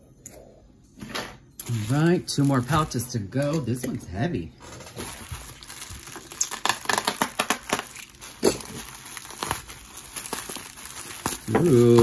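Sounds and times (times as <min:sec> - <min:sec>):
bubble wrap crackling: 0:01.6 - 0:03.7, 0:04.8 - 0:12.0.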